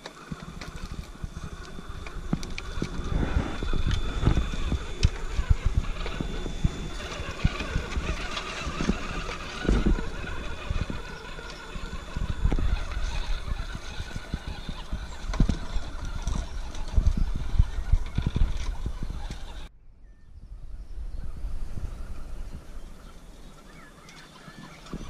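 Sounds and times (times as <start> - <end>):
toy car motor whining: 0.0 - 19.7.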